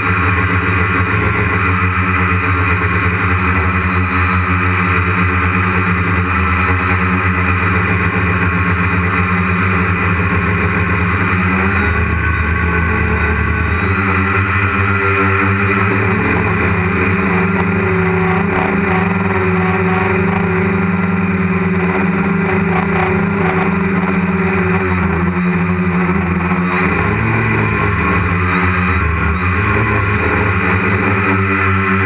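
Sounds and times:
drone propellers whirring: 0.0s - 32.0s.

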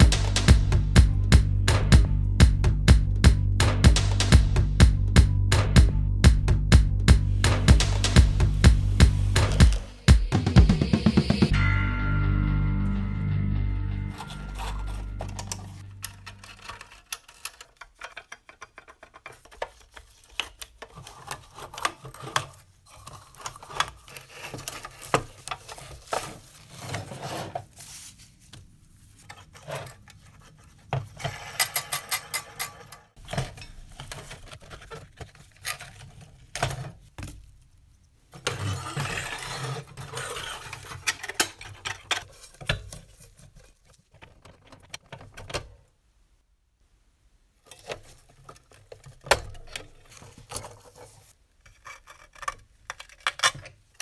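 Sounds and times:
toy metal parts rattling: 14.1s - 25.0s.

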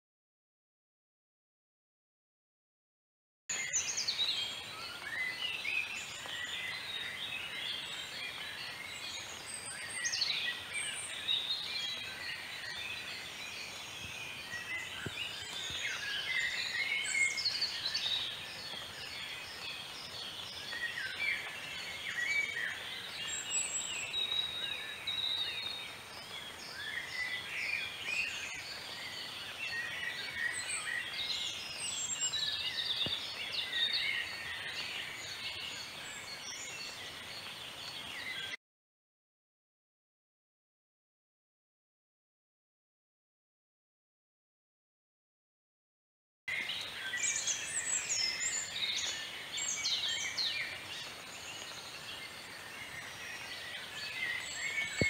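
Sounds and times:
wild birds chirping and trilling: 3.5s - 38.6s, 46.5s - 55.0s.

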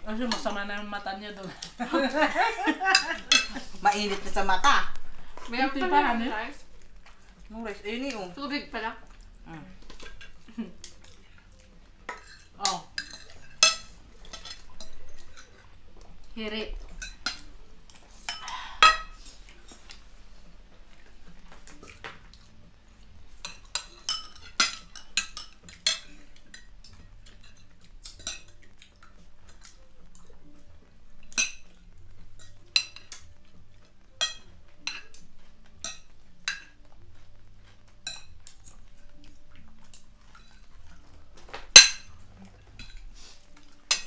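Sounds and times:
cutlery clinking against plates: 1.5s - 4.8s, 9.8s - 16.2s, 16.9s - 20.0s, 23.4s - 44.0s.

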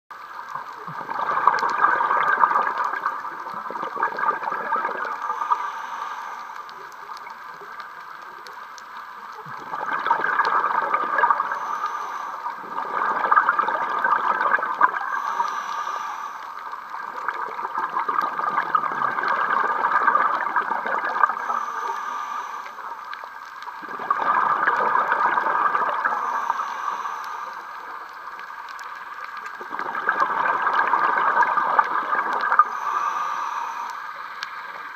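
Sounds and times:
exhaled bubbles gurgling: 0.2s - 34.9s
regulator inhalation hiss: 5.0s - 7.7s, 11.3s - 12.7s, 14.9s - 17.0s, 21.2s - 23.8s, 25.9s - 29.3s, 32.6s - 34.9s.

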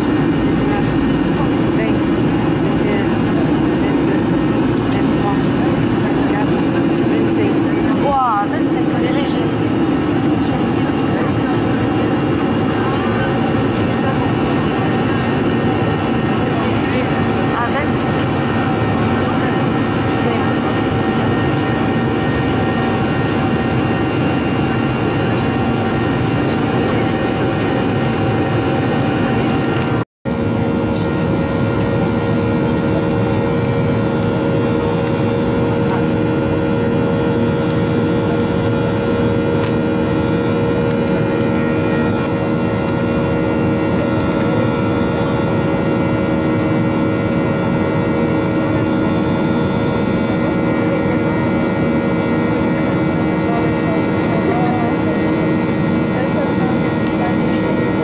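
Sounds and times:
jet cabin engine roar: 0.0s - 58.0s
steady humming tones: 0.0s - 58.0s.

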